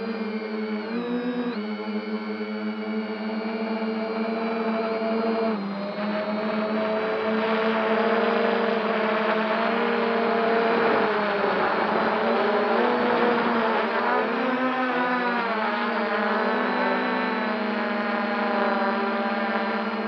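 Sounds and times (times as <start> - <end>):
quadcopter motors whining: 0.0 - 20.0.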